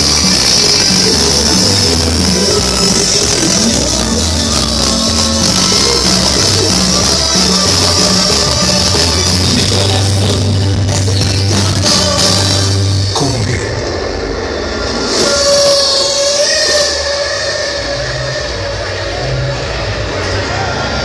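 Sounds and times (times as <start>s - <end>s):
loud dance music with heavy bass: 0.0s - 21.0s.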